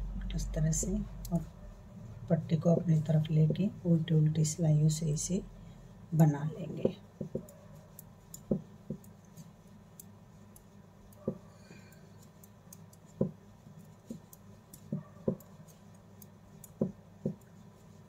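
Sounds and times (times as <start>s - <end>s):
faint low hum: 0.0s - 18.0s
metal knitting needles clicking: 7.3s - 17.6s.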